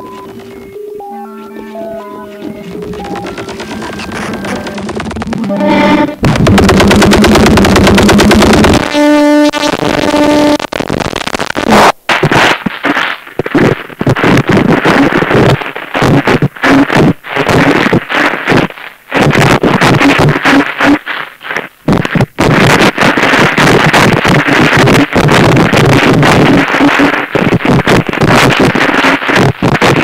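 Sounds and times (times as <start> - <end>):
harsh distorted noise music: 0.0 - 21.1, 21.9 - 30.0.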